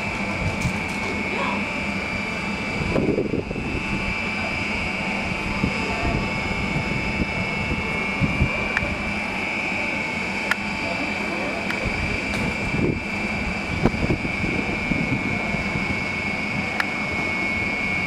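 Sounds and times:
high even whine: 0.0s - 18.0s
train mechanical hum: 0.0s - 18.0s.

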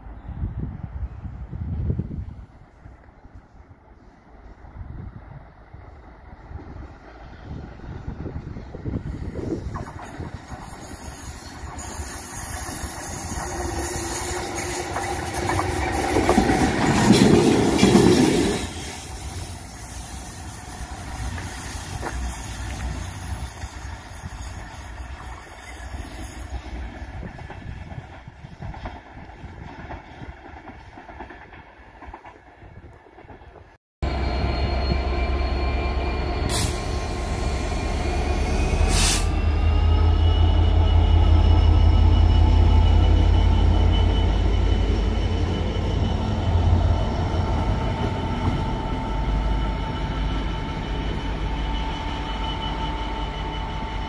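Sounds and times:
diesel locomotive passing: 0.0s - 54.0s
locomotive engine drone: 34.0s - 54.0s.

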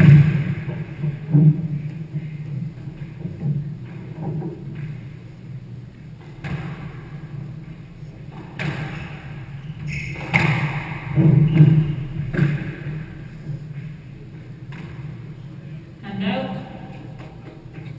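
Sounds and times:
steady low hum: 0.0s - 17.9s
squash ball knocks: 8.4s - 9.3s, 10.2s - 13.2s.

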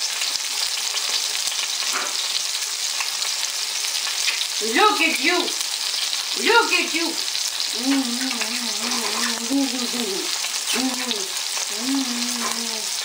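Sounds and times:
meat sizzling in oil: 0.0s - 13.0s
short vocal sounds: 7.7s - 13.0s.

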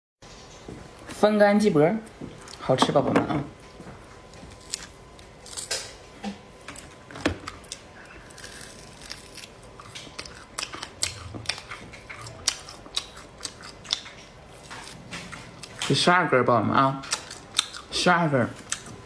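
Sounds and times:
dried meat and bone crunching: 4.2s - 6.0s, 6.7s - 16.1s
chewing close to microphone: 7.4s - 16.0s, 17.0s - 19.0s.

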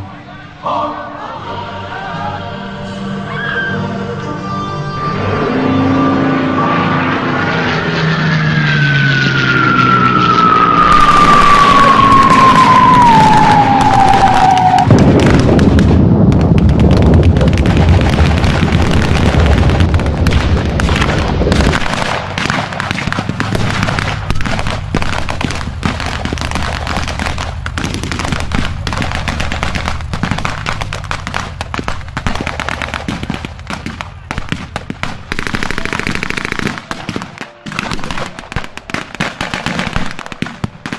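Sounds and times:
explosion with deep rumble: 10.2s - 35.9s
rapid blank gunfire: 15.0s - 40.9s.

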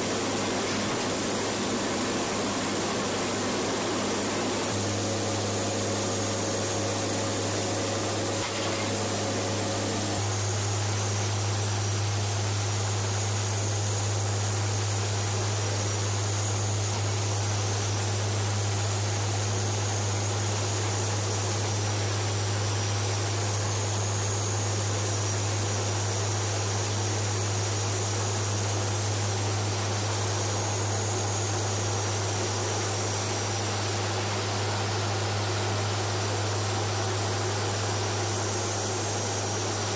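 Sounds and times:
turboprop cabin drone: 0.0s - 39.9s.

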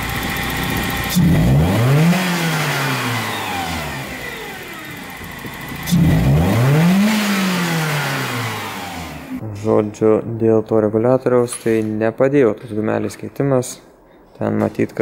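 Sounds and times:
car engine revving: 0.0s - 9.7s.

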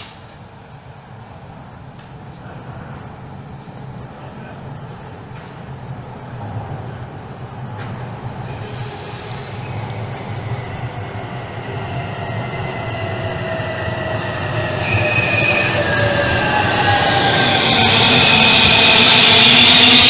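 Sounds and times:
train wheels rumbling on rails: 0.0s - 20.0s
high squealing of train brakes: 8.4s - 10.6s, 13.9s - 20.0s.

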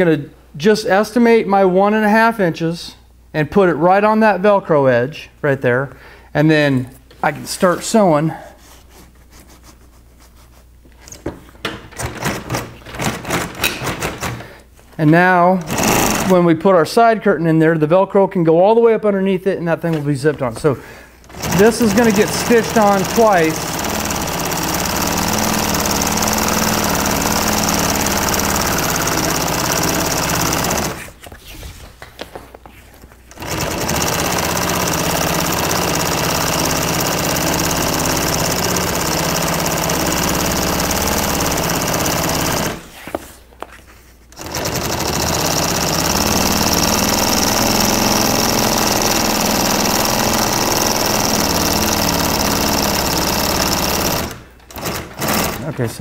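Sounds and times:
sewing machine stitching: 12.0s - 14.5s, 15.6s - 16.4s, 21.2s - 31.2s, 33.3s - 42.9s, 44.3s - 55.8s.

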